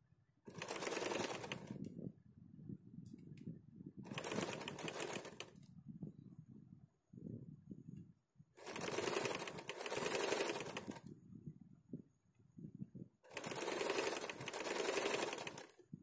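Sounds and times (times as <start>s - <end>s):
sewing machine stitching: 0.5s - 1.8s, 4.1s - 5.5s, 8.6s - 11.1s, 13.3s - 15.8s.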